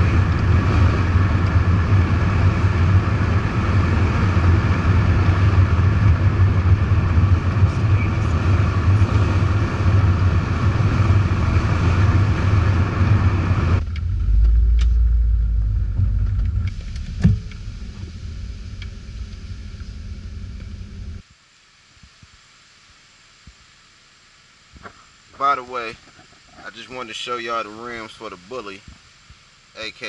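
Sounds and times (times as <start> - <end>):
car engine running: 0.0 - 21.2
low cabin rumble: 0.0 - 21.2
tyre and road noise: 0.0 - 21.2.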